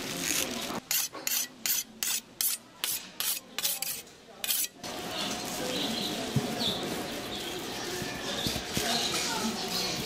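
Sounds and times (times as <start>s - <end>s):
knife rasping strokes: 0.9s - 4.8s.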